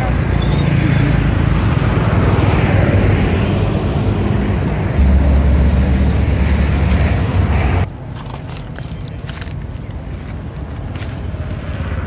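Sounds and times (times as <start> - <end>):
vehicle engine running: 0.0 - 7.9
outdoor noise: 0.0 - 12.0.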